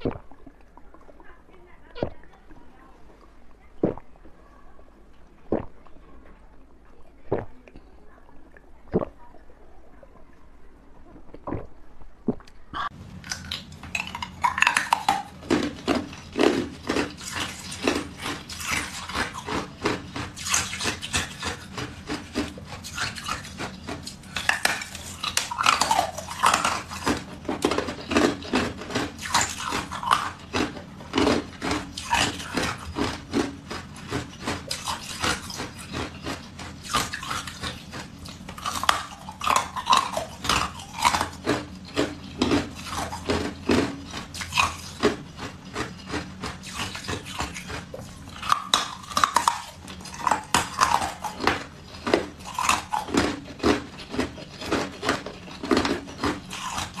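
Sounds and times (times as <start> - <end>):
ice crunching between teeth: 12.3 - 57.0
squeaky ice grinding: 13.3 - 57.0.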